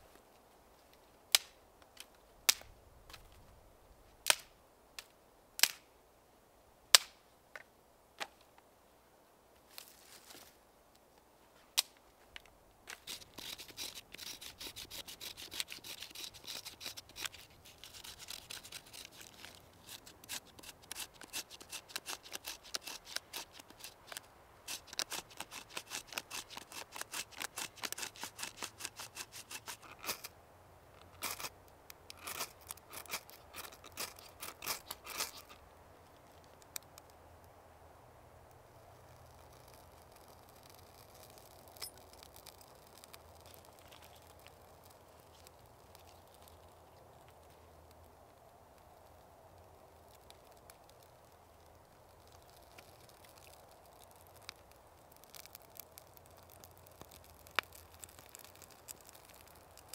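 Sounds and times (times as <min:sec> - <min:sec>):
rasping cutting strokes: 0:13.0 - 0:30.3, 0:31.2 - 0:31.5, 0:32.1 - 0:35.6.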